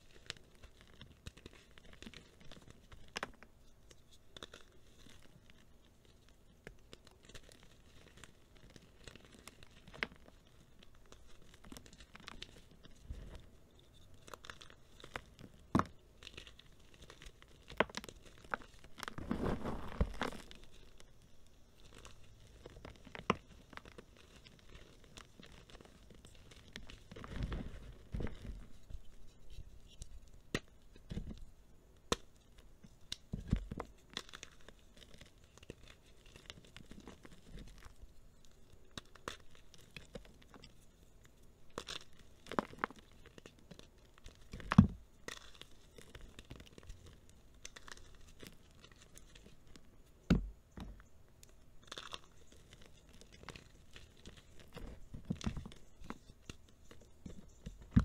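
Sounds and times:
chalk pieces snapping: 0:00.0 - 0:21.1, 0:32.1 - 0:38.0, 0:41.7 - 0:49.6, 0:51.8 - 0:58.0
chalk crumbling and crunching: 0:00.0 - 0:58.0.

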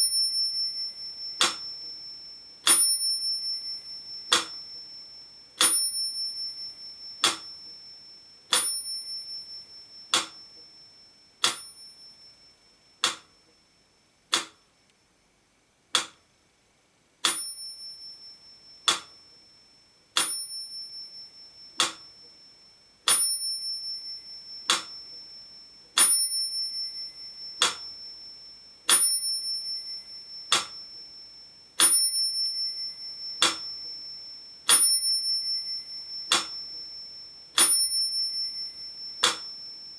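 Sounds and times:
small metronome bell ringing: 0:00.0 - 0:14.1, 0:17.3 - 0:39.9
metronome ticking: 0:00.8 - 0:05.0, 0:05.6 - 0:10.8, 0:11.4 - 0:12.1, 0:13.0 - 0:13.6, 0:14.3 - 0:14.7, 0:16.0 - 0:16.2, 0:17.2 - 0:19.5, 0:20.2 - 0:20.8, 0:21.6 - 0:22.4, 0:23.1 - 0:31.2, 0:33.2 - 0:37.0, 0:37.6 - 0:39.9.

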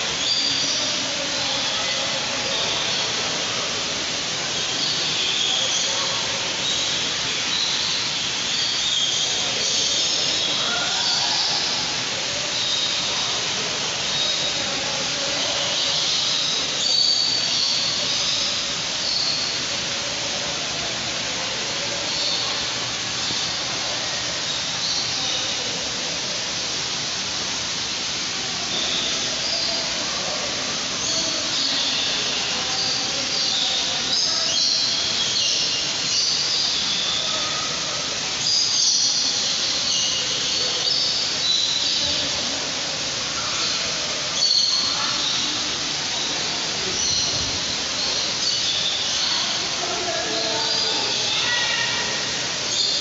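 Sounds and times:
steady rushing hiss: 0:00.0 - 0:53.0
birds chirping and whistling: 0:06.6 - 0:11.8, 0:15.5 - 0:19.6, 0:31.0 - 0:37.4, 0:38.4 - 0:42.4, 0:44.4 - 0:45.5, 0:46.5 - 0:49.7, 0:50.3 - 0:53.0.

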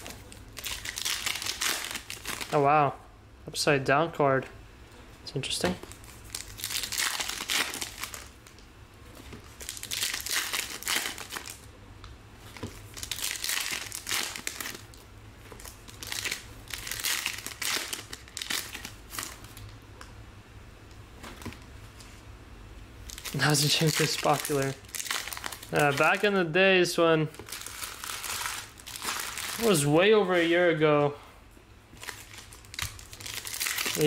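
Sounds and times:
foil wrappers crinkling: 0:00.0 - 0:02.6, 0:05.8 - 0:08.6, 0:09.4 - 0:11.7, 0:12.4 - 0:19.7, 0:23.1 - 0:26.4, 0:27.3 - 0:30.5, 0:31.9 - 0:34.0.

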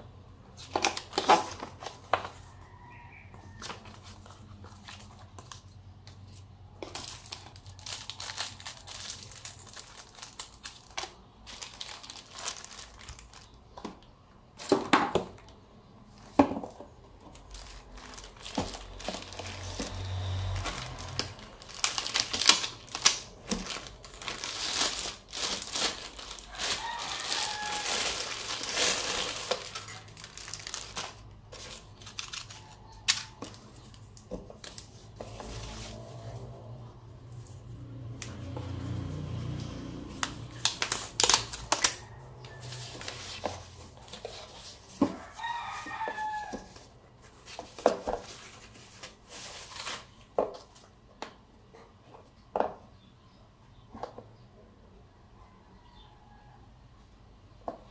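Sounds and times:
plastic bag and foam crinkling: 0:03.5 - 0:15.5, 0:16.2 - 0:36.4, 0:40.2 - 0:50.8.

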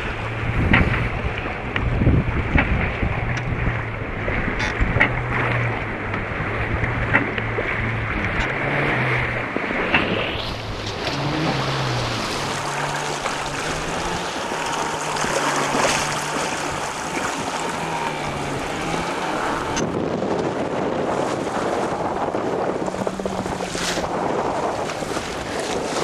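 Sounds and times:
faint low drone: 0:00.0 - 0:20.0
water rushing along hull: 0:00.0 - 0:26.0
wind buffeting microphone: 0:00.0 - 0:26.0.

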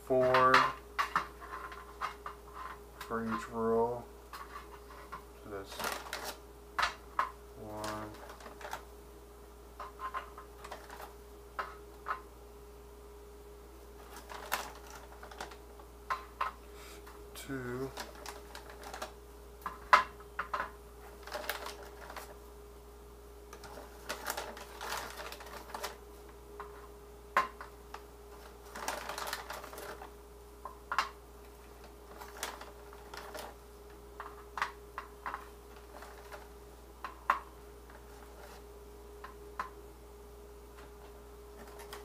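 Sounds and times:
faint steady hum: 0:00.0 - 0:42.0
plastic bag crinkling: 0:04.4 - 0:06.4, 0:07.6 - 0:08.9, 0:10.0 - 0:11.2, 0:14.0 - 0:15.7, 0:17.7 - 0:19.2, 0:21.0 - 0:22.4, 0:23.5 - 0:26.0, 0:27.9 - 0:30.1, 0:31.5 - 0:33.6, 0:34.2 - 0:36.6, 0:37.9 - 0:38.6, 0:41.5 - 0:42.0.

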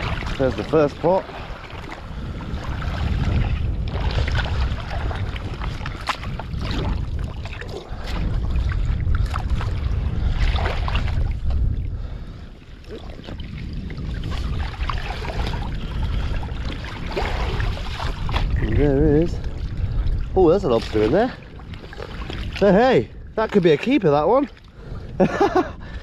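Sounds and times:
water splashing and sloshing: 0:00.0 - 0:26.0
wind buffeting microphone: 0:00.0 - 0:26.0.

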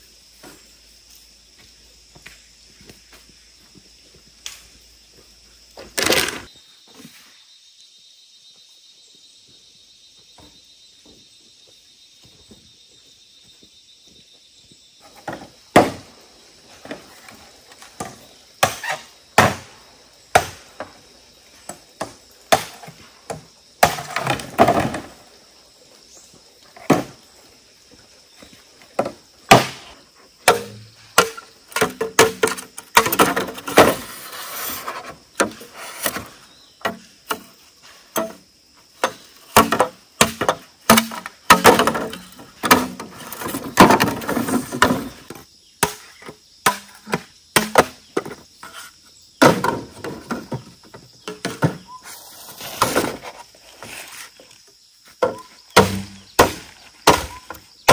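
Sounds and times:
scraping and rustling: 0:33.0 - 0:36.4, 0:51.3 - 0:54.7.

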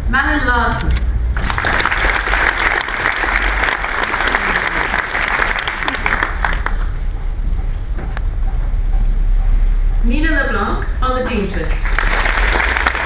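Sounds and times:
audience applauding: 0:01.4 - 0:07.0, 0:11.2 - 0:13.0.

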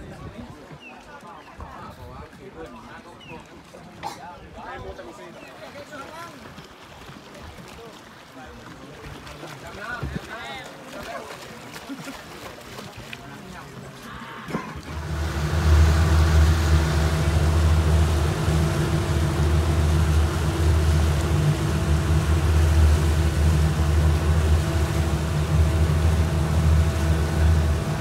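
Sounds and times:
rushing wind and water: 0:00.0 - 0:28.0
motorboat engine drone: 0:14.5 - 0:28.0.

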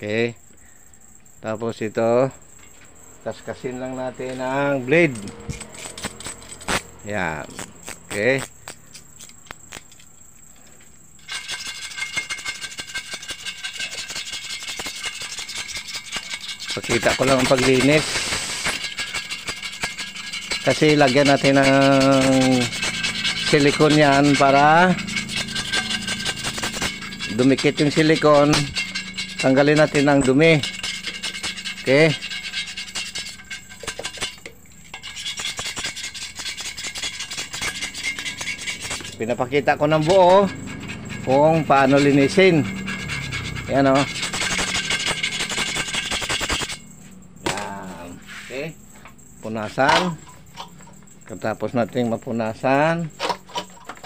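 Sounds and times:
scraping and rubbing on glass: 0:02.6 - 0:47.1
scrubbing on glass: 0:11.2 - 0:46.9.

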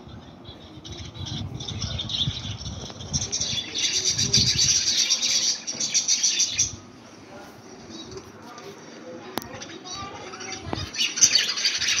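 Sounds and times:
budgerigars chirping: 0:00.5 - 0:06.8, 0:09.7 - 0:12.0.

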